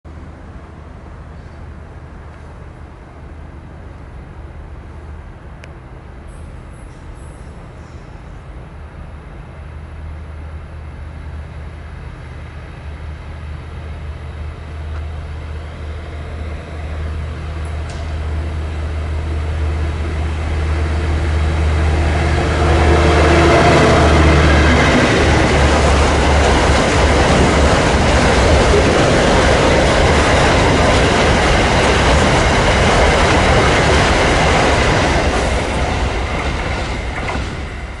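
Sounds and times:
diesel locomotive engine drone: 0.1s - 38.0s
freight wagon wheels on rails: 14.9s - 38.0s.

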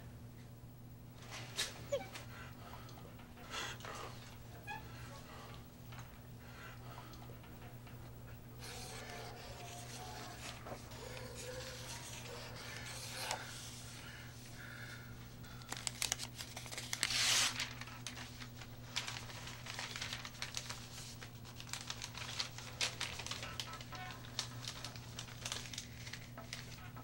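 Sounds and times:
steady low hum: 0.0s - 27.0s
newspaper pages rustling: 8.6s - 27.0s.

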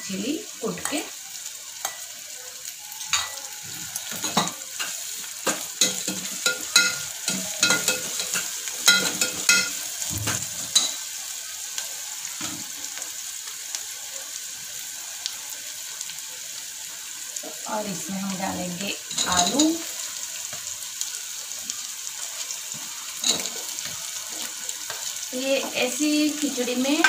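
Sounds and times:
spices sizzling in oil: 0.0s - 27.0s
spoon scraping and clinking pot: 3.0s - 9.8s, 23.2s - 23.8s.

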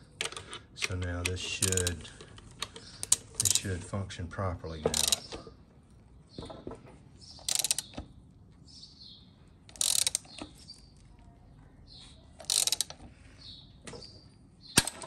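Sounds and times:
ratchet wrench clicking: 1.6s - 2.1s, 2.7s - 3.7s, 4.9s - 5.3s, 7.4s - 8.0s, 9.7s - 10.4s, 12.4s - 13.0s.

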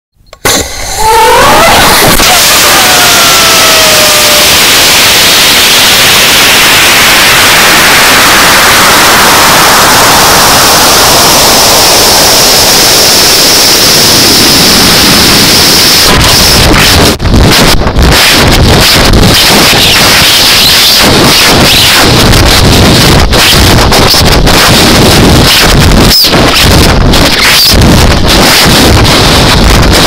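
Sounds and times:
high whistle: 0.4s - 16.6s, 19.7s - 21.9s
rush of air over microphone: 0.4s - 30.0s.

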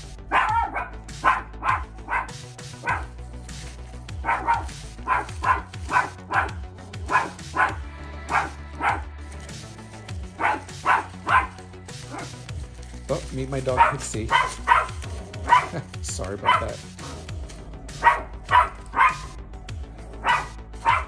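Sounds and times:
dog barking: 0.3s - 3.2s, 4.1s - 9.1s, 10.3s - 12.5s, 13.6s - 17.3s, 17.9s - 19.4s, 20.0s - 21.0s.

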